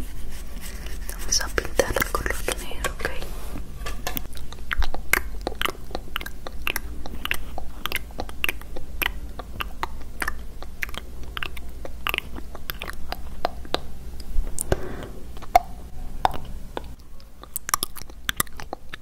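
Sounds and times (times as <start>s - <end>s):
wet mouth clicks: 4.2s - 14.8s, 15.4s - 19.0s.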